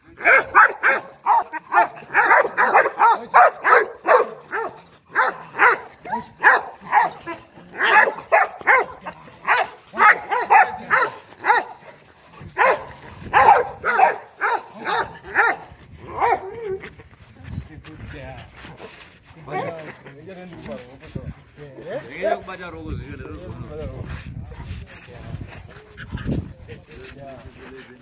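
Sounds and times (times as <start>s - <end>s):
dogs barking aggressively: 0.0s - 16.8s.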